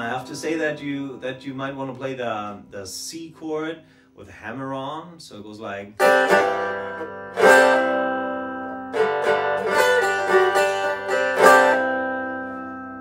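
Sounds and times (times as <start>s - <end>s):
resonator guitar strumming and picking: 0.0s - 3.0s, 6.0s - 13.0s.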